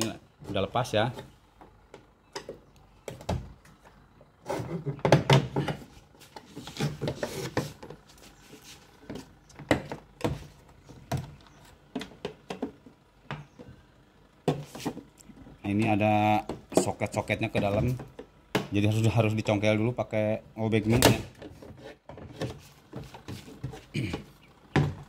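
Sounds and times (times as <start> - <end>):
plastic panel knocking and clattering: 4.9 - 5.8.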